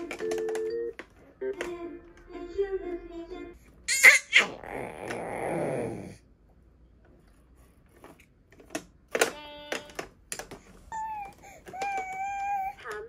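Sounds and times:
baby growling: 4.0s - 6.2s
plastic toy button clicks: 8.6s - 10.6s.

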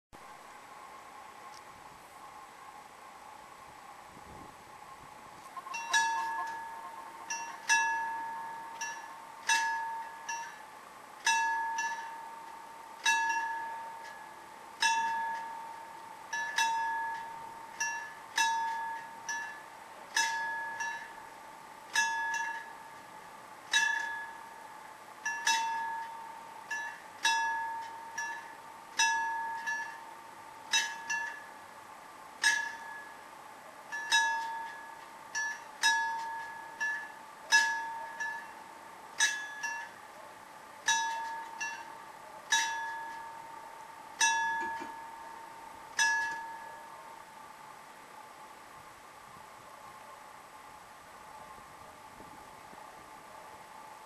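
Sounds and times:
level-crossing warning bell: 5.6s - 48.4s.

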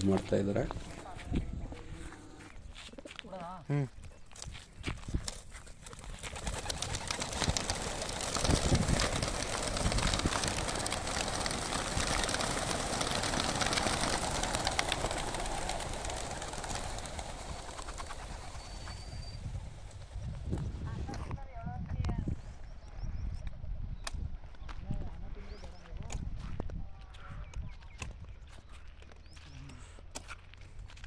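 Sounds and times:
pigeon wings flapping: 5.2s - 20.7s.

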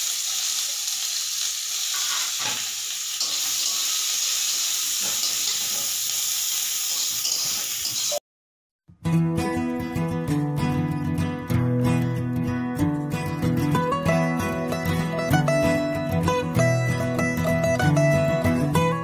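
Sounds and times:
food sizzling in a pan: 0.0s - 8.2s.

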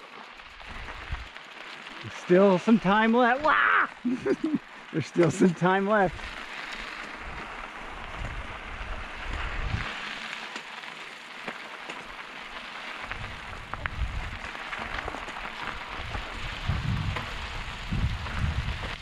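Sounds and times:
bike tyres rolling on gravel: 0.0s - 19.0s
wind buffeting microphone: 7.1s - 10.0s, 13.0s - 15.2s, 15.8s - 19.0s.

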